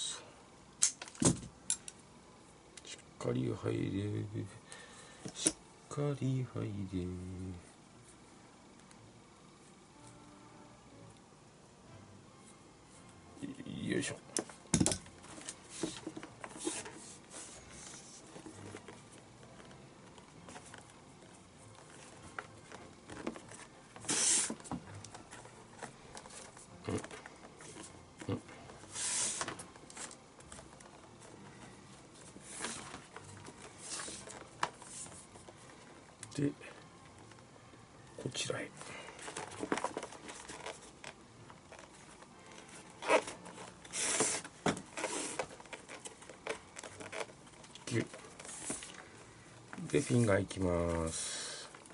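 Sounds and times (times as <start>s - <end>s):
lace hissing rasp: 24.0s - 24.7s, 28.8s - 29.6s, 43.0s - 45.6s.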